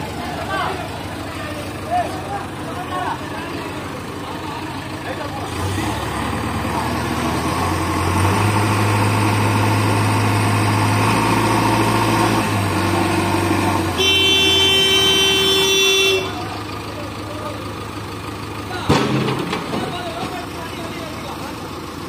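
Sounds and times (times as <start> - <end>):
heavy diesel engine running: 0.0 - 22.0
vehicle horn blast: 14.0 - 16.6.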